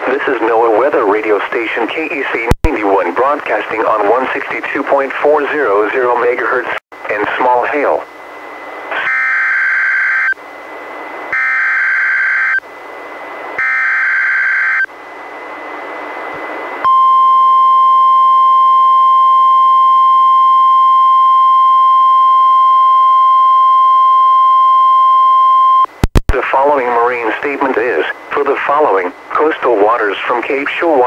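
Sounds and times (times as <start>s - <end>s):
radio hiss: 0.0s - 8.1s, 8.8s - 9.1s, 26.0s - 31.0s.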